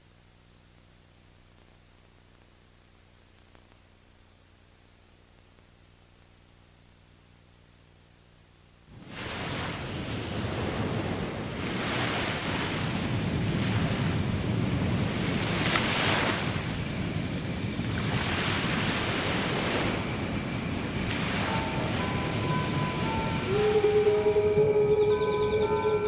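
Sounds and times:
waves washing up shore: 8.9 - 26.0
low hum: 16.5 - 26.0.

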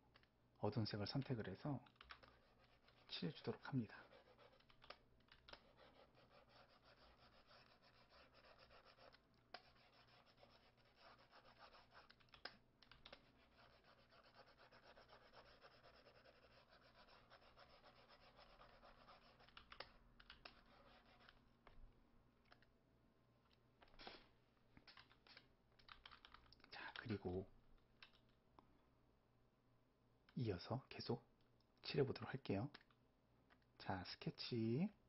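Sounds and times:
stylus scratching on tablet: 2.1 - 21.4.

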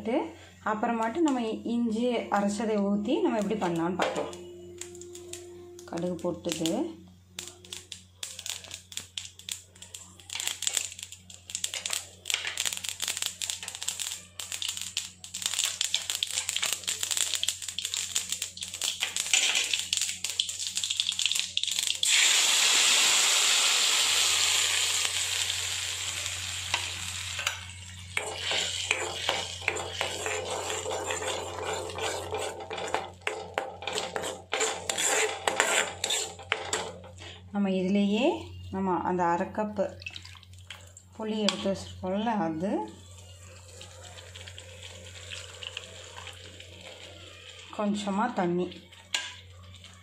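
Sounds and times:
mustard seeds popping in oil: 3.3 - 22.9, 24.5 - 37.0
paste sizzling in hot oil: 7.4 - 36.6, 43.0 - 50.0
metal spoon scraping a pan: 18.6 - 19.9, 26.7 - 37.1.

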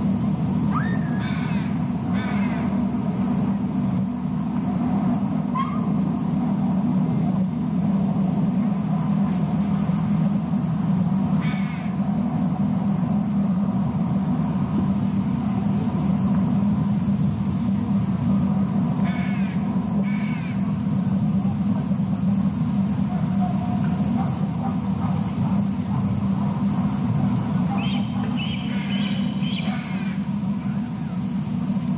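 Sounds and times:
steady low rumble: 0.0 - 31.9
harsh caw-like bird calls: 0.8 - 2.9, 11.4 - 12.0, 19.0 - 20.8, 27.8 - 30.3.

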